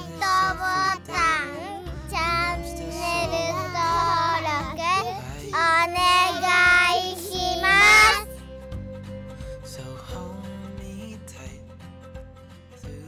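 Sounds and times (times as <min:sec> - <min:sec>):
high child-like singing voice: 0:00.0 - 0:08.3
instrumental music: 0:00.0 - 0:13.0.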